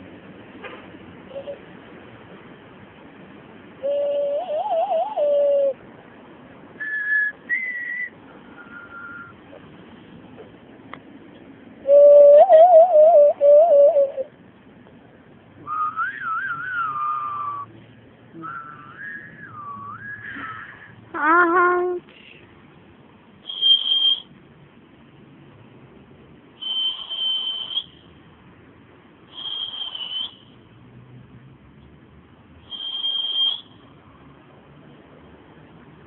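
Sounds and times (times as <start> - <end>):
hand whistle hooting: 3.8 - 5.8, 6.8 - 9.4, 11.8 - 14.3, 15.6 - 17.7, 18.4 - 20.8, 23.4 - 24.3, 26.6 - 28.1, 29.3 - 30.5, 32.6 - 33.8.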